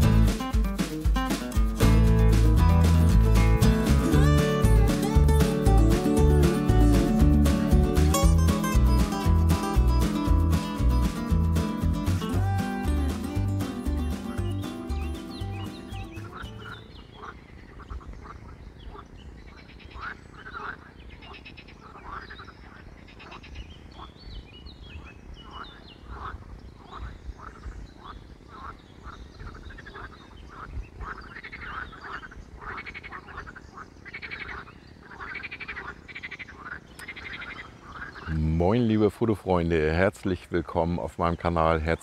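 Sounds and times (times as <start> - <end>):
frogs croaking: 16.1 - 24.2, 24.9 - 38.9.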